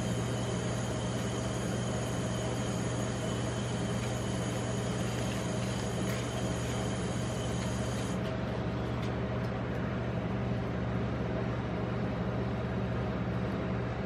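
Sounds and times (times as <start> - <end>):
refrigeration compressor humming: 0.0 - 14.0.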